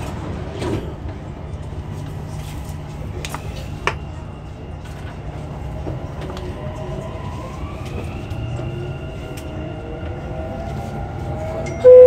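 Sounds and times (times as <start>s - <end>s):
train carriage rumble and whine: 0.0s - 12.0s
loud chime tone: 11.7s - 12.0s.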